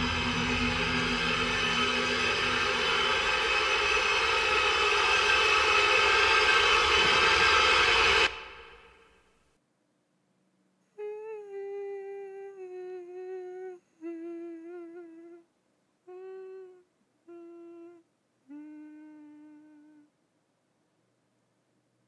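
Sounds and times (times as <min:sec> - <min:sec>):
person humming a slow tune: 0:10.9 - 0:20.2.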